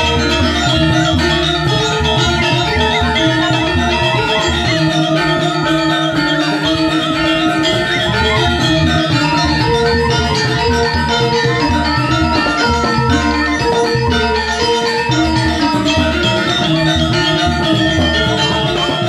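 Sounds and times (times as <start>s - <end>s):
bronze metallophones ringing: 0.0s - 19.0s
hand drums: 0.0s - 19.0s.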